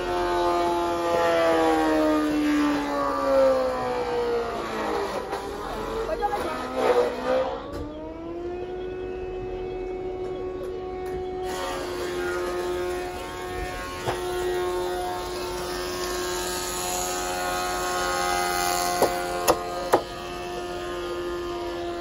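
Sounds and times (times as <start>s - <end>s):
sawmill motor whining hum: 0.0s - 22.0s.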